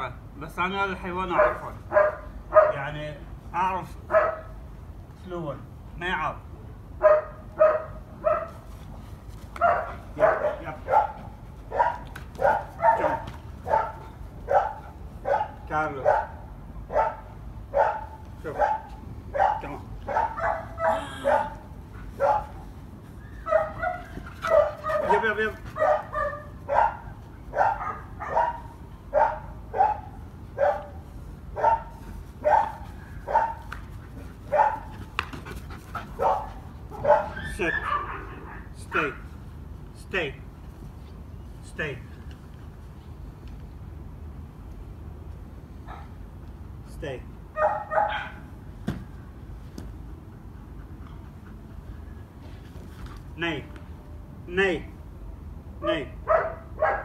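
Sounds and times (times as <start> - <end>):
dog barking sharply: 1.3 - 2.8, 9.6 - 21.6, 23.5 - 31.0, 31.6 - 33.6, 34.5 - 34.9, 36.2 - 38.6, 47.6 - 48.4, 56.3 - 57.0.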